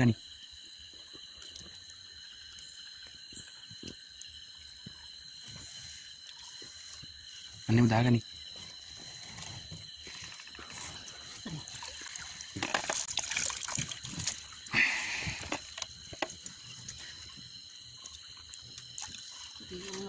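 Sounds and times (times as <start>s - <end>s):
water dripping from net: 1.3s - 5.1s, 11.4s - 20.0s
rush of water: 10.0s - 17.3s.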